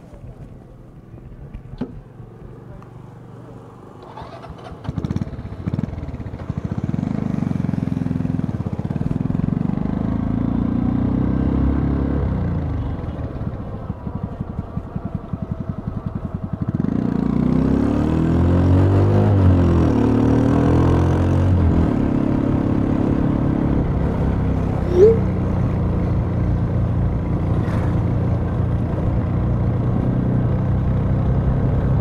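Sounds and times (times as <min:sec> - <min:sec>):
motorcycle engine revving: 0:04.0 - 0:32.0.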